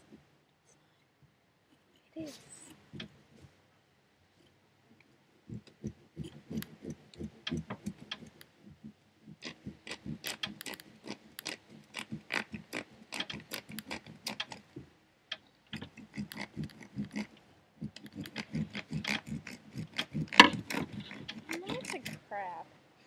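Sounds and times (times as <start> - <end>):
knife cutting pumpkin: 5.5 - 8.4, 9.3 - 14.8, 15.8 - 22.2.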